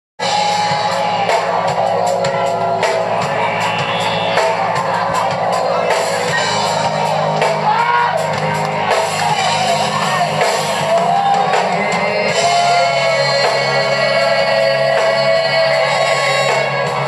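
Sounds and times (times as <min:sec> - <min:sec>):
live reggae band playing: 0:00.2 - 0:17.0
woman singing: 0:11.4 - 0:17.0.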